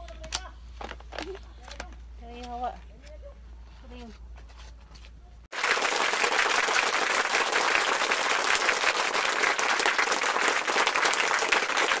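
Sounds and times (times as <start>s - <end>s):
crowd applause: 5.5s - 12.0s.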